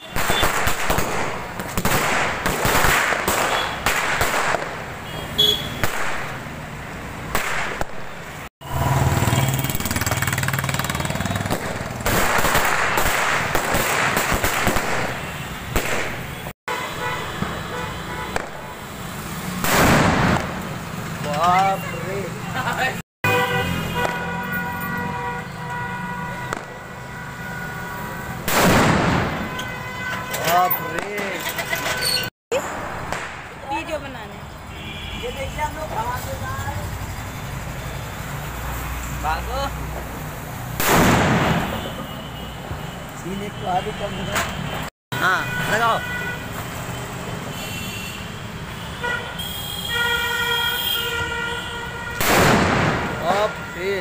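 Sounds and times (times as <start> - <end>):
firecracker bang: 0.0 - 5.0, 7.3 - 8.1, 11.5 - 16.3, 18.3 - 18.7, 19.6 - 20.7, 28.4 - 29.6, 40.8 - 42.0, 52.1 - 53.4.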